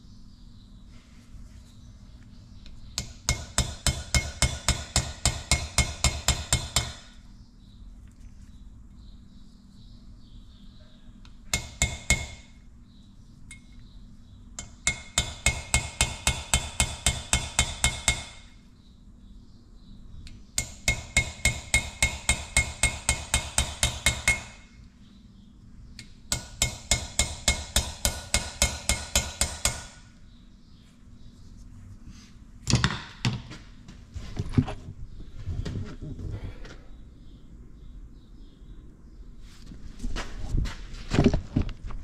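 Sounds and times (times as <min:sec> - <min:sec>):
hammer tapping on metal: 0:03.0 - 0:07.1, 0:11.5 - 0:12.5, 0:14.6 - 0:18.4, 0:20.6 - 0:24.6, 0:26.0 - 0:30.0.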